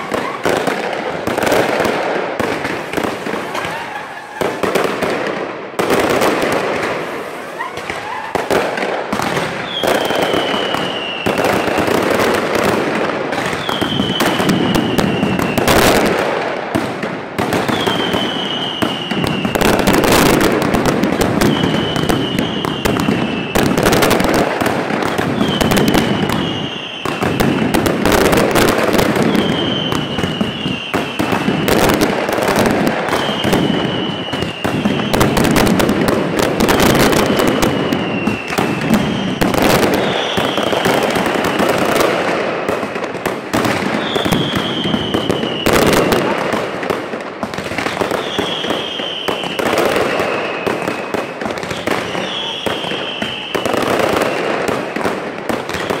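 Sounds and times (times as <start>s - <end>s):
falling firework whistle: 0.0s - 1.8s, 2.4s - 5.1s, 6.1s - 12.4s, 13.4s - 16.2s, 17.5s - 35.9s, 36.5s - 43.1s, 43.7s - 46.3s, 47.8s - 56.0s
firecrackers crackling and banging: 0.0s - 56.0s.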